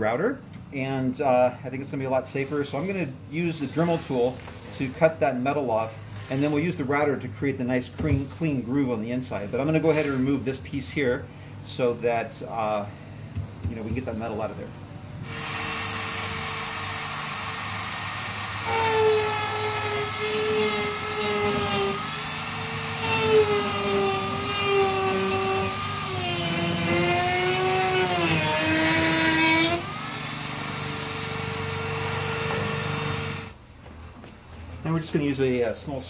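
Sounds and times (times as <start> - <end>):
rotary tool cutting metal: 15.2 - 33.5
rotary tool whining: 15.2 - 33.6.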